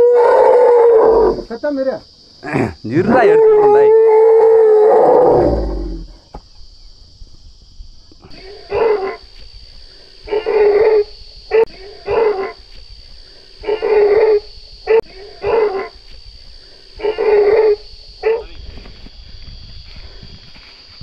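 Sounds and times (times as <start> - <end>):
elephant calf crying out: 8.3 - 9.3, 10.2 - 12.6, 13.6 - 16.0, 17.0 - 18.5.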